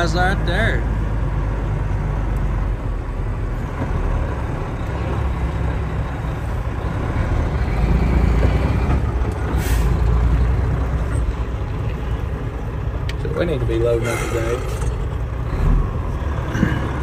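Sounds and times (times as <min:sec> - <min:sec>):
diesel engine running: 0:00.0 - 0:17.0
air brake hiss: 0:09.6 - 0:10.0.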